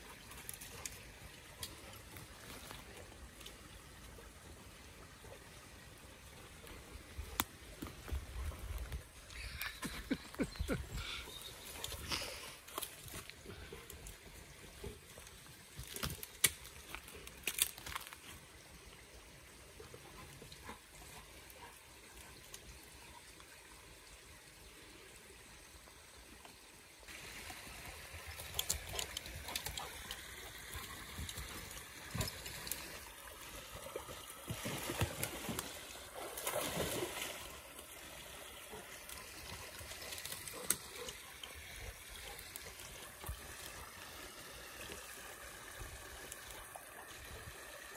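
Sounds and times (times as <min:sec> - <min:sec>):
stream trickling: 0:00.0 - 0:47.9
twigs snapping and rustling: 0:15.8 - 0:18.3, 0:28.4 - 0:29.8.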